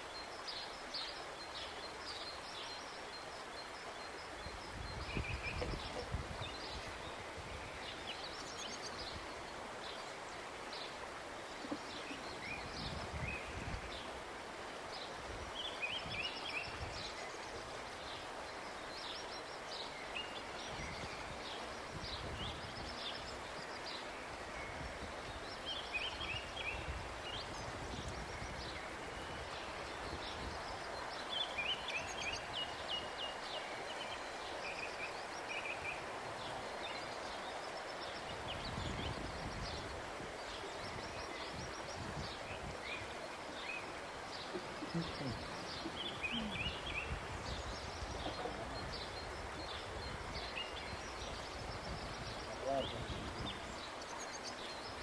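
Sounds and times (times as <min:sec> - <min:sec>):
small birds chirping: 0:14.9 - 0:55.0.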